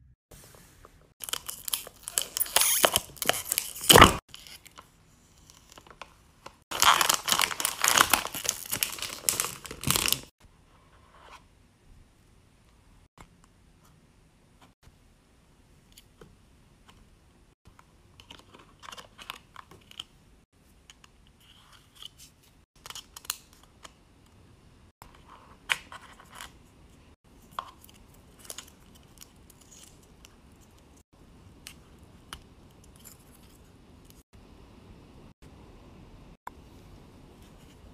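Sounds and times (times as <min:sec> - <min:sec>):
paper packaging crinkling: 0:01.2 - 0:04.8, 0:06.7 - 0:10.3.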